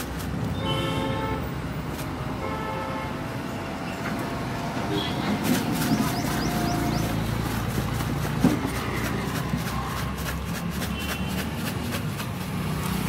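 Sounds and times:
traffic rumble: 0.0s - 13.0s
newspaper crackling: 5.4s - 13.0s.

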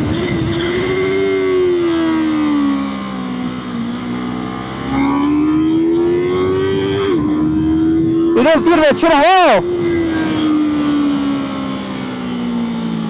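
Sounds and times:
motorcycle engine accelerating: 0.0s - 13.0s
wind and road noise: 0.0s - 13.0s.

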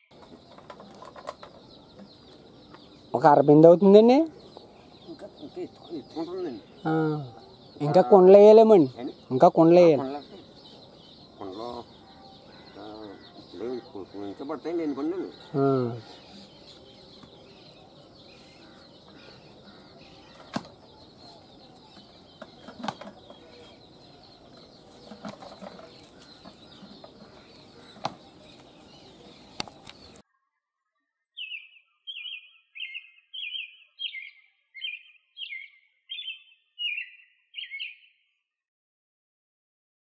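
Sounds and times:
faint outdoor ambience: 0.0s - 30.2s
bird calling: 0.0s - 30.3s, 31.4s - 38.2s.

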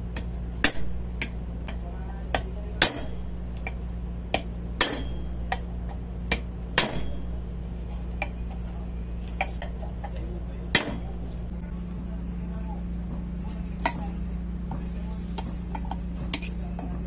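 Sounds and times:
hammer striking metal punch: 0.1s - 7.6s, 10.7s - 11.5s.

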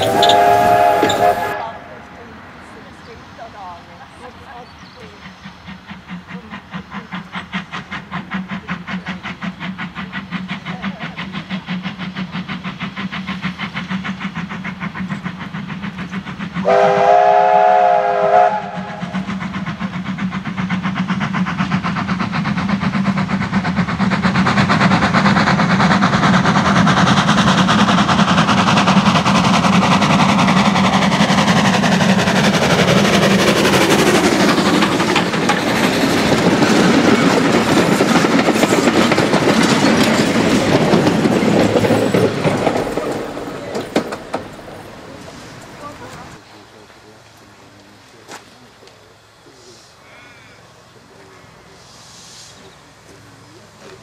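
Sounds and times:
steam whistle chord: 0.0s - 2.0s, 16.6s - 19.0s
steam locomotive exhaust beats: 0.0s - 54.0s.

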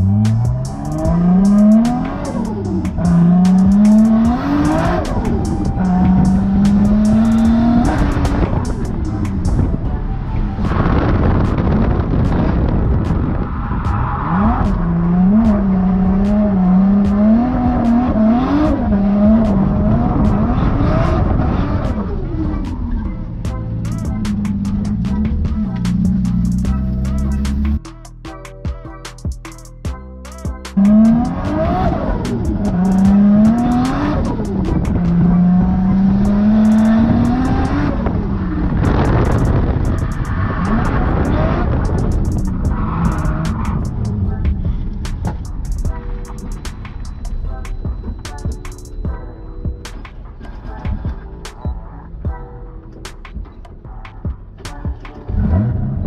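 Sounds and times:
car engine revving hard: 0.0s - 9.7s, 14.0s - 22.3s, 30.8s - 44.2s, 55.4s - 56.0s.

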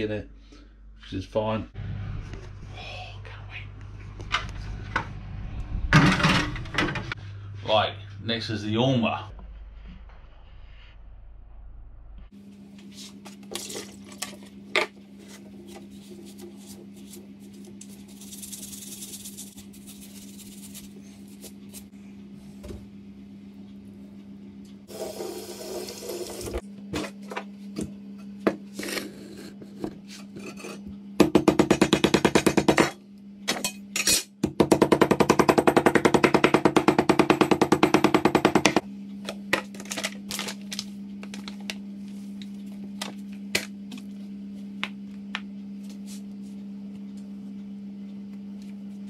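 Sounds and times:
low hum: 0.0s - 12.9s
tap water running: 24.9s - 26.6s
soft rubbing and handling: 45.8s - 46.7s.

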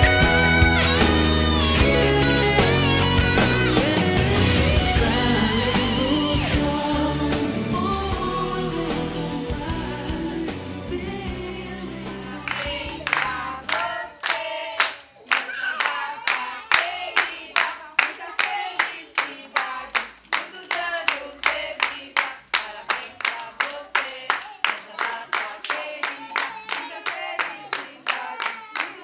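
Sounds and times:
background music with bass line: 0.0s - 13.4s
young children singing: 4.9s - 29.0s
children clapping in a beat: 12.4s - 29.0s.

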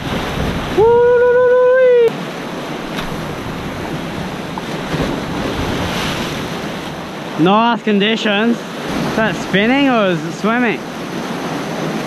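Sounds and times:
wind on microphone: 0.0s - 7.2s
surf washing against rocks: 0.0s - 12.0s.

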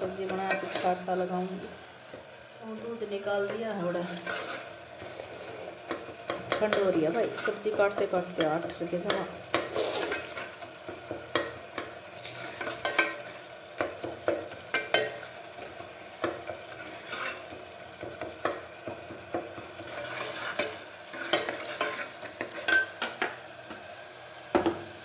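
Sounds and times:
oil sizzling: 0.0s - 25.0s
spoon scraping a metal pot: 0.2s - 1.0s, 4.0s - 7.8s, 9.1s - 10.6s, 11.3s - 13.4s, 14.7s - 15.3s, 16.2s - 17.6s, 19.8s - 23.2s.

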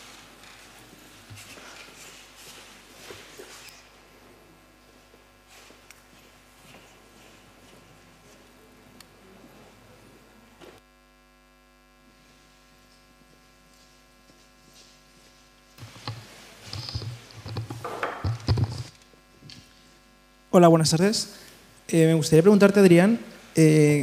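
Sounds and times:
electrical hum: 0.0s - 24.0s
microphone handling thumps: 15.8s - 19.0s.

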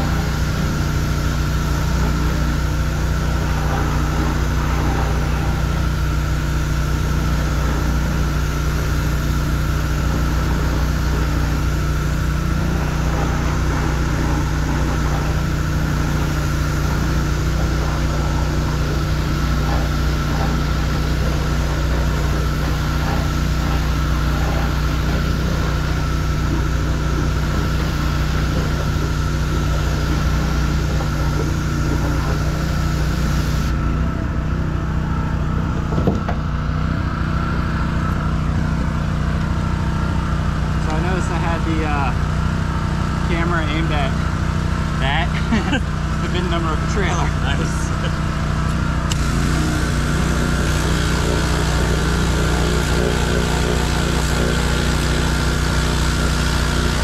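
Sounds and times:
water spray hissing: 0.0s - 33.8s, 49.1s - 57.0s
pressure washer engine running: 0.0s - 57.0s.

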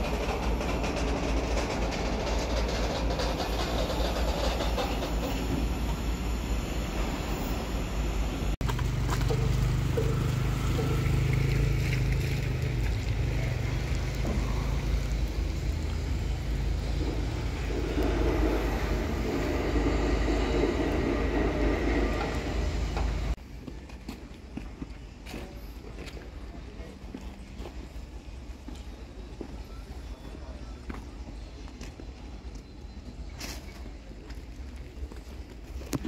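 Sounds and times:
vehicle engine hum: 0.0s - 23.4s
road noise: 0.0s - 30.2s.

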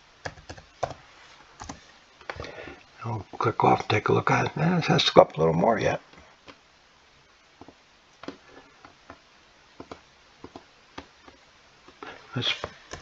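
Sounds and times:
computer mouse clicks: 9.8s - 11.4s.

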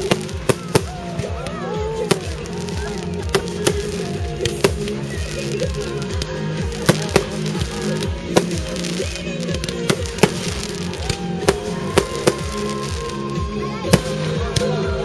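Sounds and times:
fireworks bursting: 0.0s - 14.8s
music: 0.0s - 15.0s.

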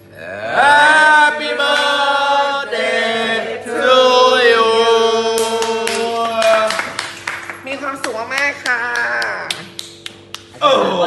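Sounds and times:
people clapping: 5.2s - 10.6s.

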